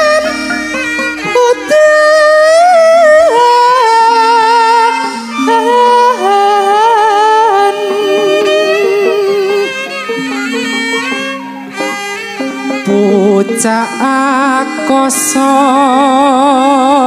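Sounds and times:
low instrumental notes: 0.0s - 17.0s
man singing in a high voice: 1.2s - 9.7s, 12.8s - 17.0s.

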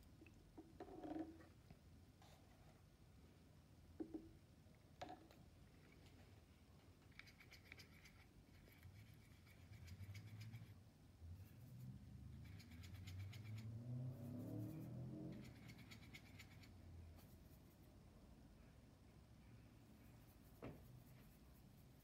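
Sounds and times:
paintbrush scratching on palette: 7.1s - 10.8s, 11.4s - 18.0s, 20.0s - 22.0s.

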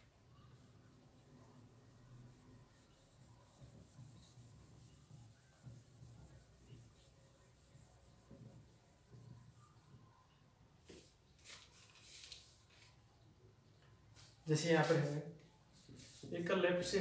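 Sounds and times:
marker rubbing on whiteboard: 0.0s - 10.2s, 14.2s - 17.0s.

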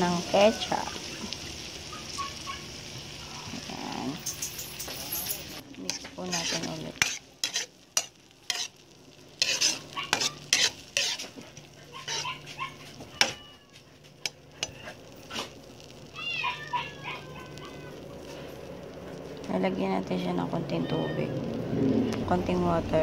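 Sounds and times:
food sizzling in a wok: 0.0s - 23.0s
spatula scraping and knocking pan: 5.9s - 8.8s, 9.4s - 13.4s.

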